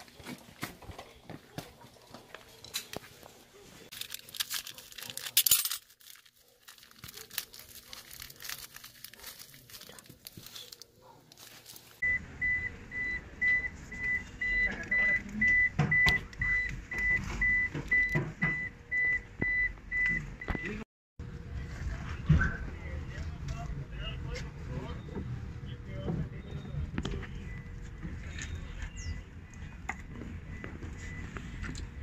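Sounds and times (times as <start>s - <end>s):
plastic package crinkling: 3.9s - 12.0s.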